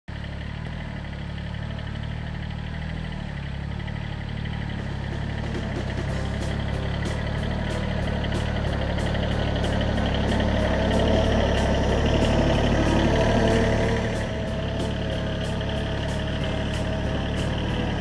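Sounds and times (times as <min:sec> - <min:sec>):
tractor diesel engine running: 0:00.1 - 0:18.0.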